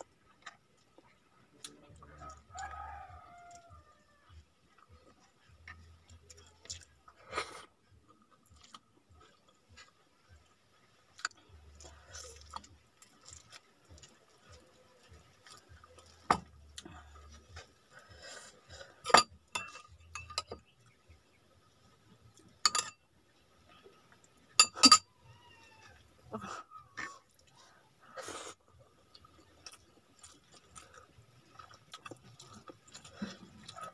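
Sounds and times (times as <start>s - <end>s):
metal spoon clinking on dishes: 19.1s - 20.6s, 22.6s - 23.0s, 24.6s - 25.1s.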